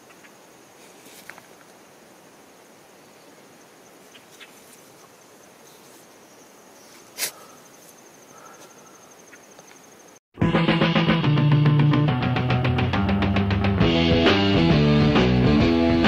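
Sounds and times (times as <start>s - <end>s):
faint outdoor hiss: 0.0s - 10.2s
insects trilling: 0.0s - 10.2s.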